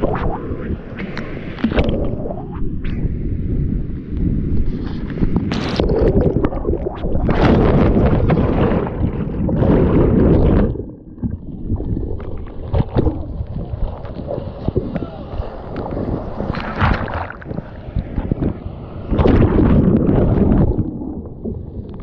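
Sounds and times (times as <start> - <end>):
water splashes and drips: 15.7 - 18.4.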